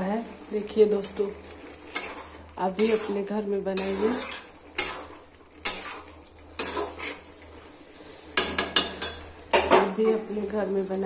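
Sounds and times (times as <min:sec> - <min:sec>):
metal spoon scraping a pan: 0:01.6 - 0:10.4.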